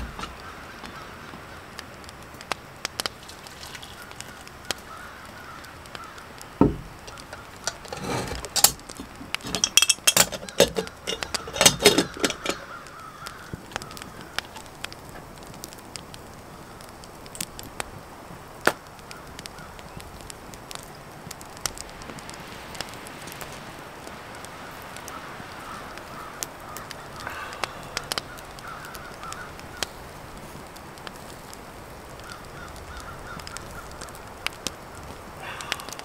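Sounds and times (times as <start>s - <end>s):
faint small crackles: 0.0s - 36.0s
dull thump: 6.6s - 7.0s
metal pot and cup clinking: 7.6s - 12.7s.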